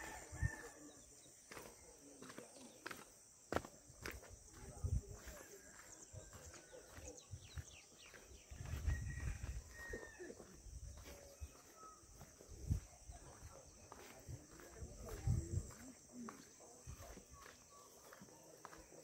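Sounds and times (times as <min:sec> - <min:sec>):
insects droning: 0:00.0 - 0:19.0
footsteps on concrete: 0:01.4 - 0:09.8, 0:10.4 - 0:19.0
bird chirps: 0:11.0 - 0:14.8.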